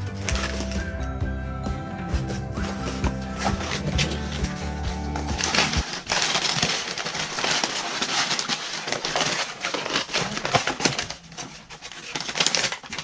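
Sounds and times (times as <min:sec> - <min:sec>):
packing paper crinkling: 0:00.0 - 0:00.9, 0:02.0 - 0:13.0
background music: 0:00.0 - 0:06.0.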